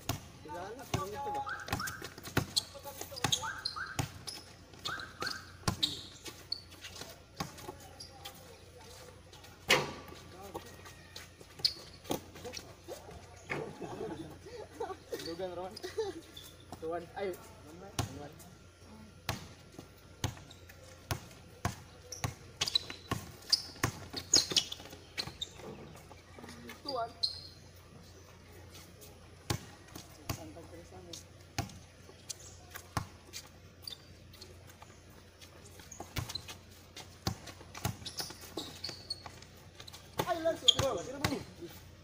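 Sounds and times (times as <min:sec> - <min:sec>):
basketball bouncing on hard court: 0:00.0 - 0:06.0, 0:21.1 - 0:25.4, 0:37.2 - 0:39.4.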